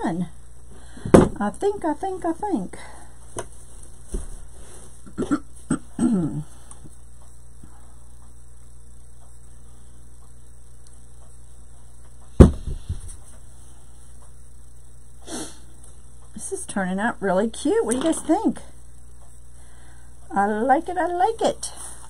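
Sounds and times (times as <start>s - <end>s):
loud thump: 1.0s - 1.4s, 12.4s - 13.2s.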